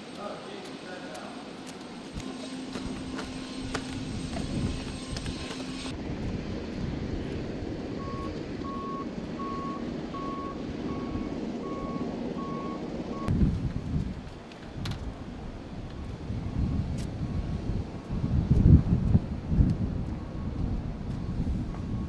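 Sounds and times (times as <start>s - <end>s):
steady hum: 0.0s - 13.5s.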